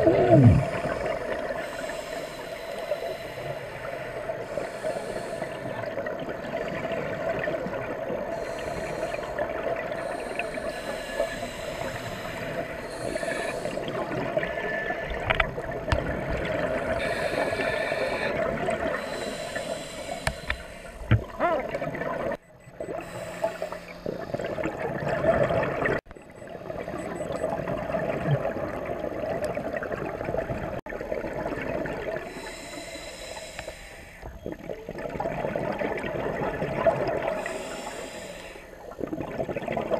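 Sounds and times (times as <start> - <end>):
watery hiss: 0.0 - 5.8, 8.3 - 14.2, 16.8 - 21.1, 32.3 - 34.3, 37.3 - 38.9
exhaust bubbles underwater: 0.0 - 33.0, 33.6 - 39.9.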